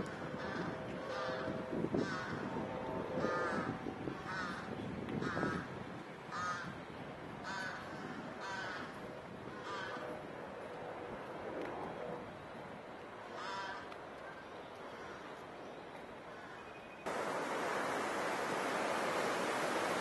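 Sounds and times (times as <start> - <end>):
crow cawing: 13.4 - 13.8.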